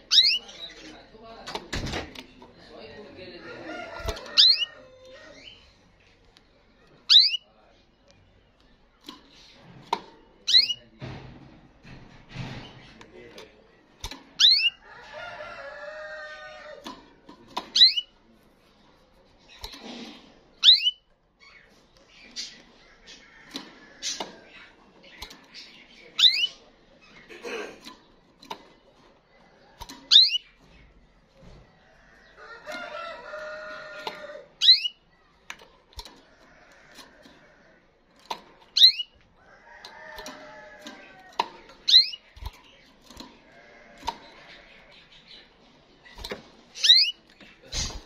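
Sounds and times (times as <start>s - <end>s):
rooster crowing: 3.4s - 5.4s, 14.9s - 16.8s, 32.4s - 34.5s, 39.4s - 41.3s.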